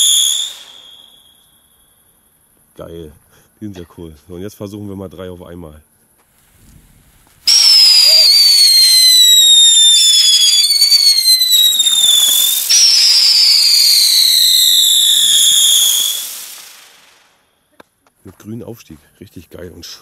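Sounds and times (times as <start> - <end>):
whistling ground spinner fireworks: 0.0 - 2.3, 6.4 - 17.7.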